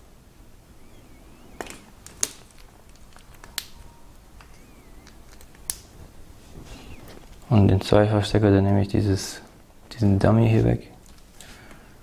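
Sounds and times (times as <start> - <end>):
plastic connectors clicking: 1.6 - 5.9.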